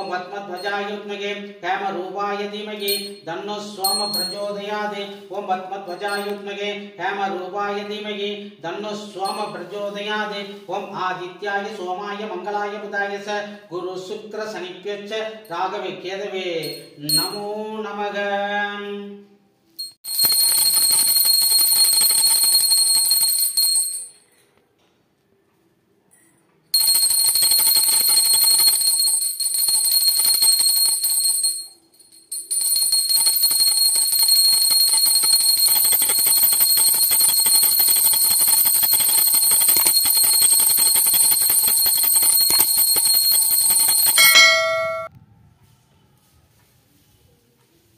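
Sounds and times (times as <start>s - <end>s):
brass hand bell ringing: 0.0s - 0.7s, 3.8s - 4.6s, 6.0s - 6.4s, 20.0s - 24.1s, 26.8s - 45.1s.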